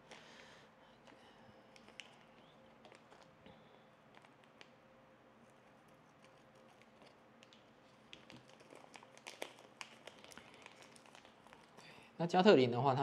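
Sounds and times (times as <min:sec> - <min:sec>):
plastic bag crinkling: 0:01.0 - 0:03.4, 0:06.2 - 0:11.8.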